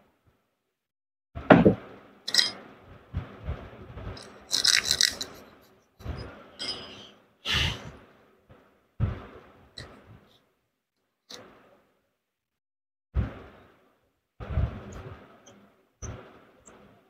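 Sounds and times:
metal parts clinking and scraping: 2.3s - 2.6s, 4.2s - 5.7s, 6.6s - 7.1s.

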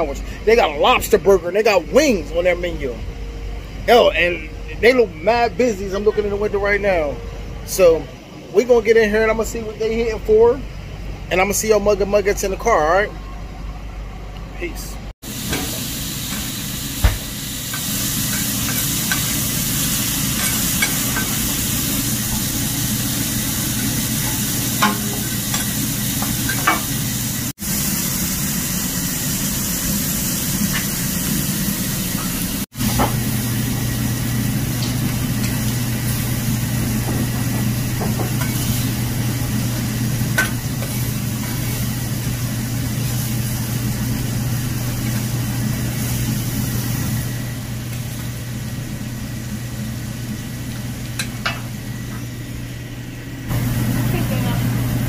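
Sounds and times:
low hum: 0.0s - 27.5s
food sizzling in hot oil: 15.2s - 52.0s.

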